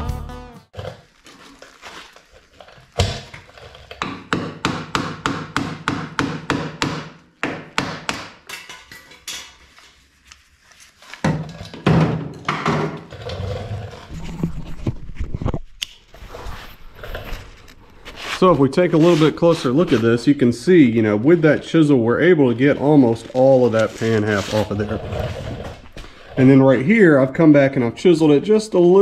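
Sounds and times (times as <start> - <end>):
background music: 0.0 - 0.7.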